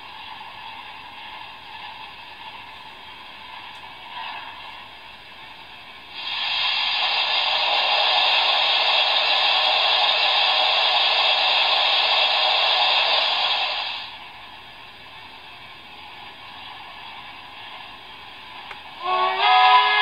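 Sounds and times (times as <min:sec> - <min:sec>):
steam hiss from small speaker: 0:06.1 - 0:14.2.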